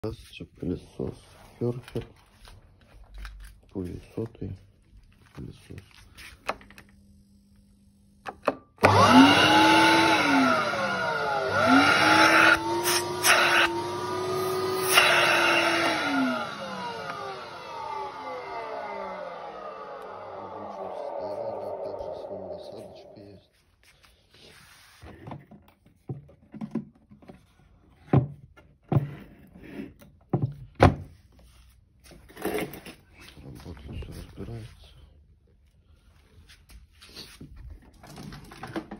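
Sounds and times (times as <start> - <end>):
vacuum cleaner motor whine: 8.8 - 23.3.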